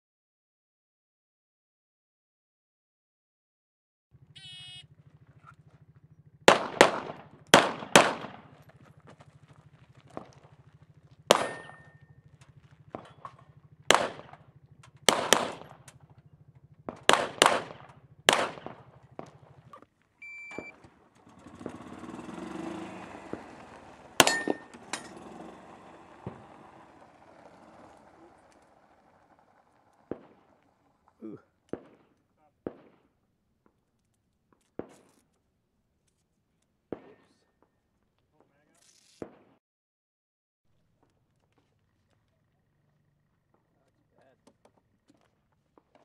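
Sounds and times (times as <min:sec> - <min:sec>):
pistol shots: 0:06.4 - 0:08.8, 0:11.2 - 0:12.0, 0:12.7 - 0:16.1, 0:16.8 - 0:19.8, 0:24.2 - 0:24.7, 0:30.0 - 0:30.6, 0:31.6 - 0:33.2, 0:36.9 - 0:37.4
shot timer beep: 0:20.2 - 0:20.8.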